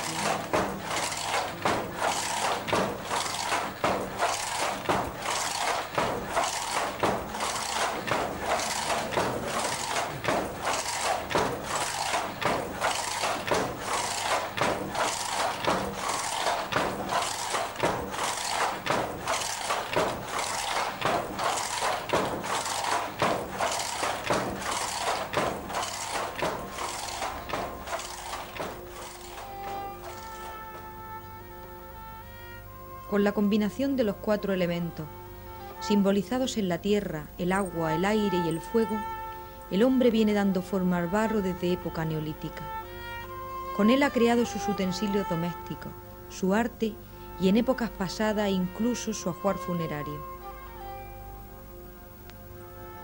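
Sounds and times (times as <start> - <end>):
handloom wooden knocks and clacks: 0.0 - 30.9.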